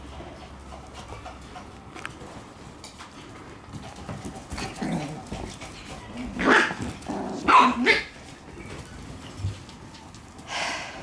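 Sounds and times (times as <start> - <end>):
puppies barking: 6.2 - 8.2.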